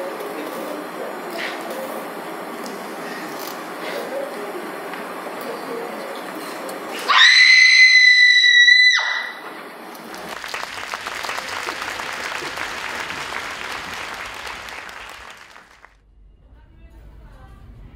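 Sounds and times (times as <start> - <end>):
audience applause: 10.0 - 16.0.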